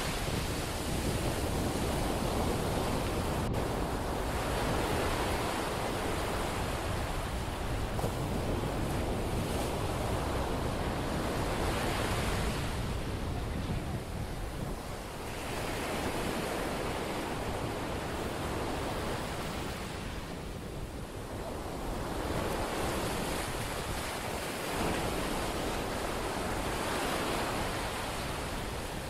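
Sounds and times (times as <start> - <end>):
surf breaking on beach: 0.0 - 20.1
wind rumbling on microphone: 0.0 - 29.0.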